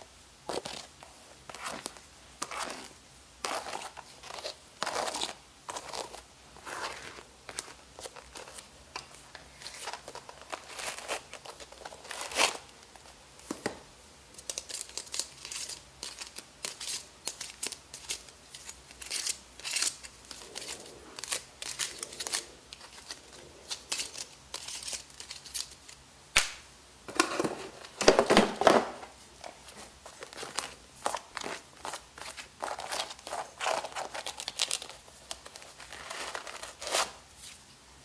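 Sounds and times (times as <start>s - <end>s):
plastic crinkling and rustling: 0.4s - 13.8s, 27.1s - 37.7s.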